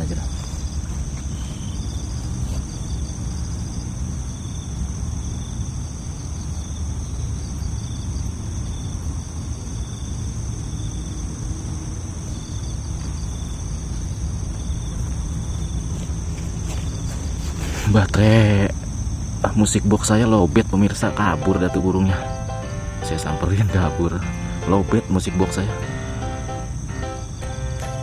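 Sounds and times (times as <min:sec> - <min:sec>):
short insect chirps: 0:00.0 - 0:08.9
insects trilling: 0:00.0 - 0:28.0.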